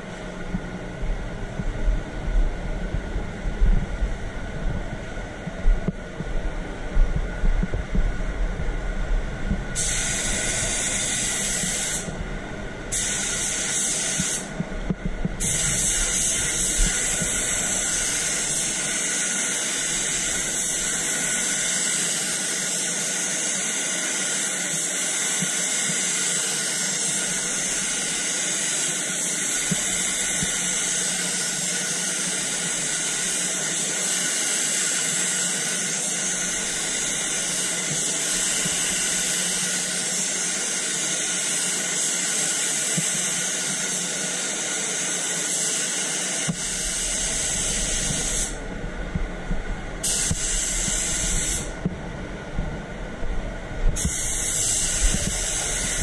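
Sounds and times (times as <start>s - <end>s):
spray gun hissing: 9.7s - 12.2s, 12.9s - 14.6s, 15.4s - 48.6s, 50.0s - 51.8s, 54.0s - 56.0s.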